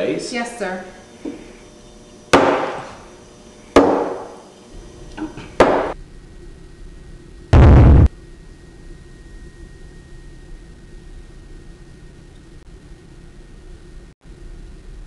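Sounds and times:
loud burst of noise: 7.5s - 8.1s.

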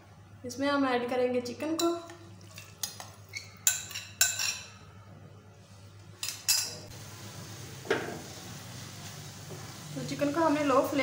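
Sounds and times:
spoon clinking against frying pan: 3.6s - 4.8s
chicken frying in hot oil: 6.9s - 11.0s.

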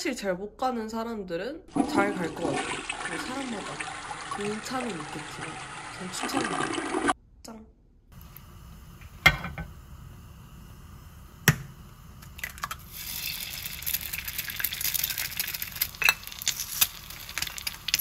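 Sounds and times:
egg sizzling in frying pan: 12.2s - 18.0s.

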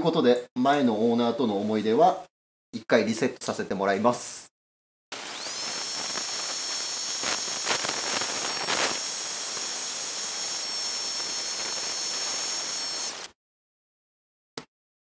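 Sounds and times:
heat gun blowing hiss: 5.1s - 13.4s.

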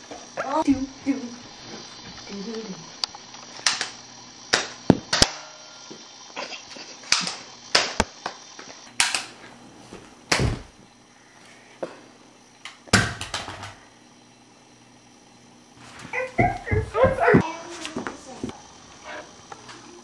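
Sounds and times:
heavy thumps: 16.1s - 17.4s.

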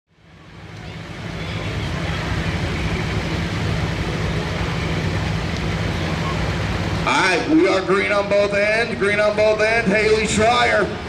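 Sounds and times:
tractor engine idling: 0.2s - 11.0s.

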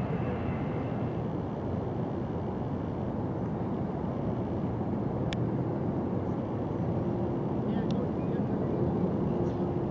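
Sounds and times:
jet engines flying overhead: 0.0s - 9.9s.

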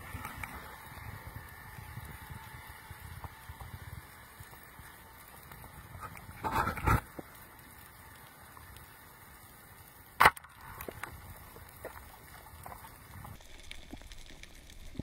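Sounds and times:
faint steady hiss: 0.0s - 15.0s
sharp crack: 10.2s - 11.2s.

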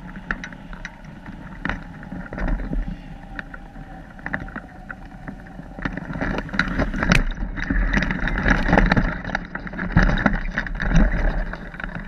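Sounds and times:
wind buffeting microphone: 0.0s - 12.0s
knocks and rattles: 4.2s - 12.0s.

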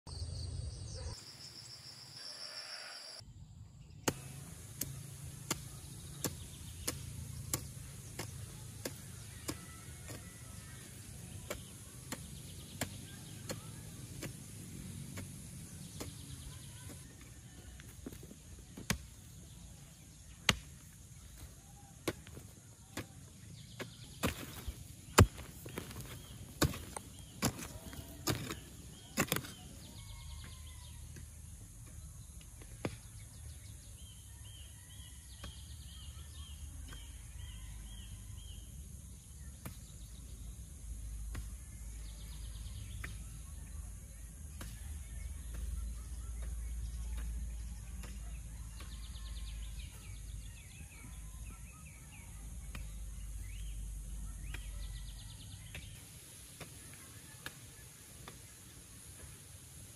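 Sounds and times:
hoe chopping into dry earth: 4.0s - 17.2s, 22.0s - 30.6s.

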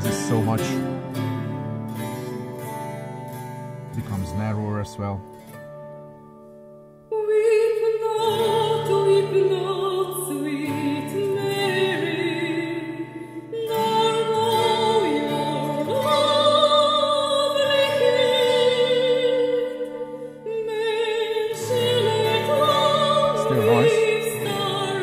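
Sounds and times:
operatic singing with accompaniment: 13.7s - 25.0s.

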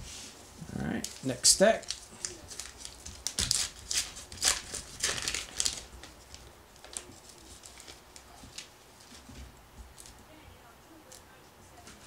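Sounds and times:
wrapper tearing and crinkling: 1.0s - 8.7s.

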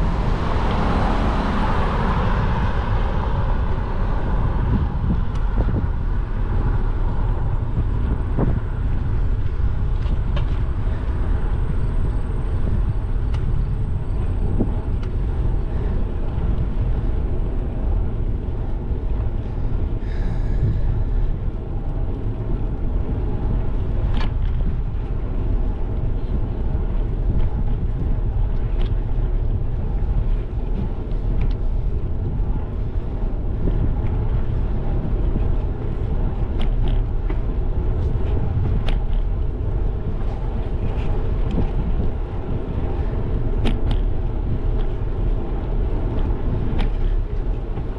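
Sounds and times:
car passing: 0.0s - 9.3s
wind rushing over microphone: 0.0s - 47.9s.

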